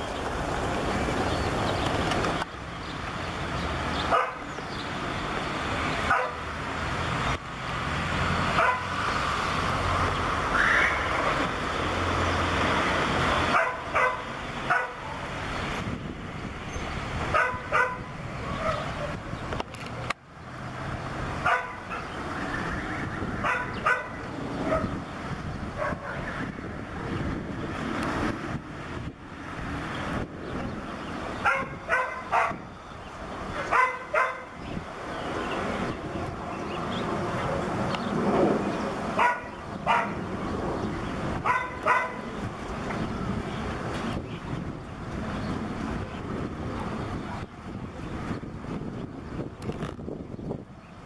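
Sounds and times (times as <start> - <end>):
jet airliner engine roar: 0.0 - 51.0
dog barking: 4.1 - 4.5, 6.1 - 6.4, 8.6 - 8.9, 13.5 - 15.2, 17.3 - 19.2, 21.4 - 22.1, 23.4 - 25.0, 25.8 - 26.3, 31.4 - 32.6, 33.6 - 34.6, 39.2 - 40.2, 41.4 - 42.2.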